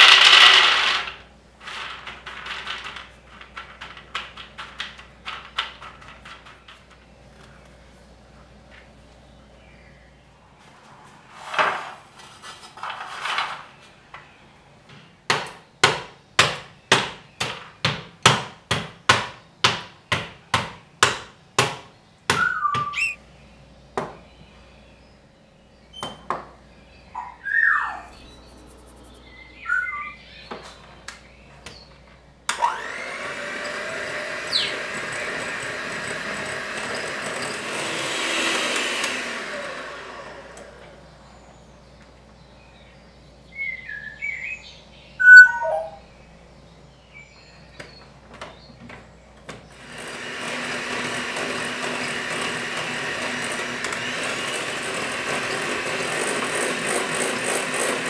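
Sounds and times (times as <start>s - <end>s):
electric hand mixer whirring: 32.6s - 40.9s, 49.8s - 58.0s.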